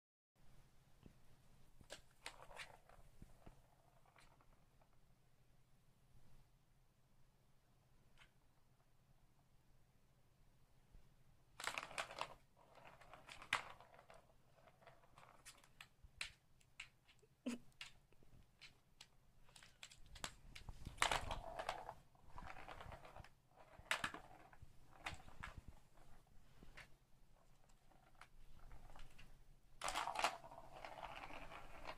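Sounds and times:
plastic ball rattling in tubes: 0:11.6 - 0:16.0, 0:19.5 - 0:26.2, 0:27.4 - 0:31.9.

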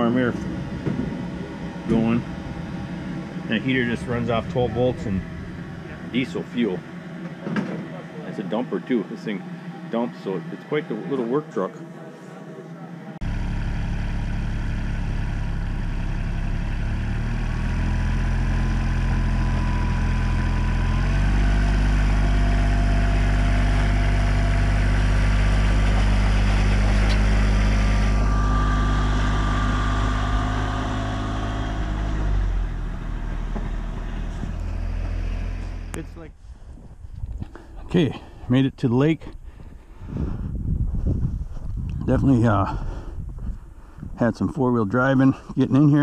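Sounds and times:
diesel utility vehicle engine revving: 0:00.0 - 0:11.8, 0:13.2 - 0:36.4.

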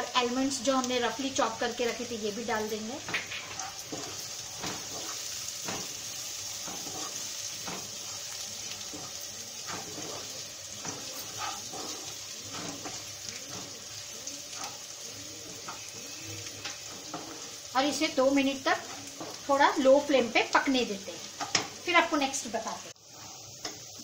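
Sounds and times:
food sizzling in oil: 0:00.0 - 0:24.0
wooden spatula scraping pan: 0:03.0 - 0:13.8, 0:18.8 - 0:19.5.

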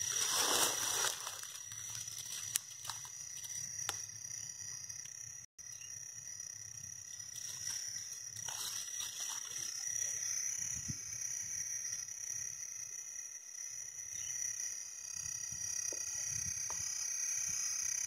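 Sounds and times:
insects or frogs calling: 0:00.0 - 0:18.0.

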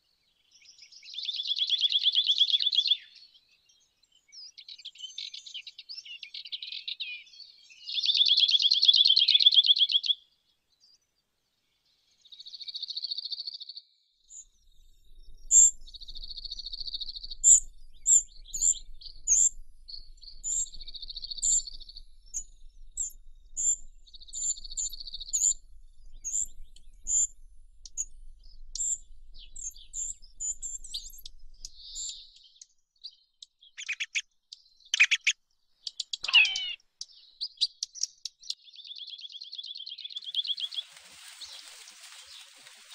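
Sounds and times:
short high bird chirps: 0:15.4 - 0:28.1, 0:33.7 - 0:41.6.

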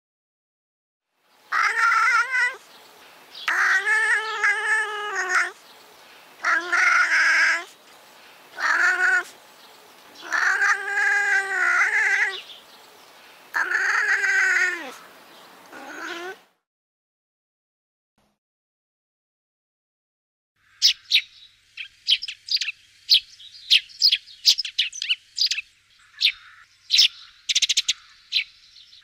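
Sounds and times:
wildcat yowling: 0:01.5 - 0:02.7, 0:03.4 - 0:05.6, 0:06.4 - 0:07.7, 0:08.6 - 0:09.4, 0:10.1 - 0:12.5, 0:13.5 - 0:15.1, 0:15.7 - 0:16.4.

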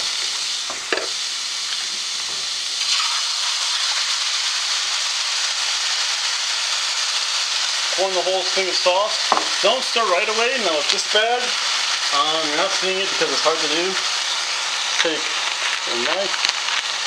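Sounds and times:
vegetables sizzling in a frying pan: 0:00.0 - 0:17.0
sauce being poured: 0:02.8 - 0:05.9.

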